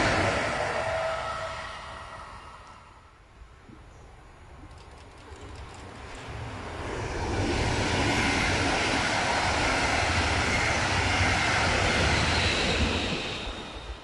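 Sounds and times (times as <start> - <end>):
passenger train passing: 0.0 - 3.5, 5.0 - 14.0
wind buffeting microphone: 5.4 - 14.0.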